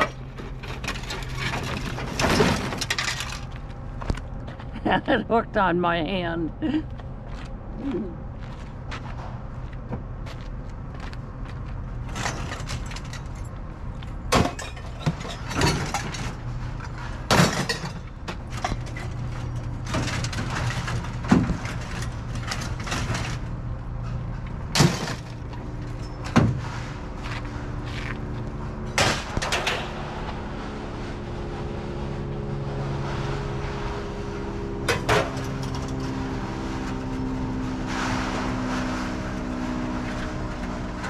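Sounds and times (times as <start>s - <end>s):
scrap metal landing: 0.0s - 3.6s, 14.3s - 28.0s
steady low hum: 0.0s - 38.5s.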